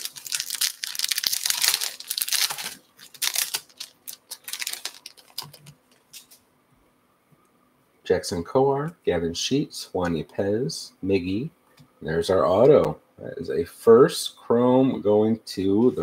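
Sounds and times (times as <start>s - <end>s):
foil wrapper tearing and crinkling: 0.0s - 6.4s.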